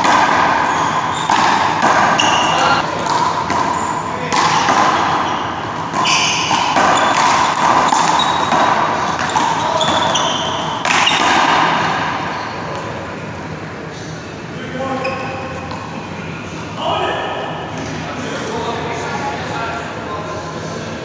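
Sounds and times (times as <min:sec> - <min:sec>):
sneakers squeaking on court: 0:00.4 - 0:02.8, 0:05.0 - 0:11.3.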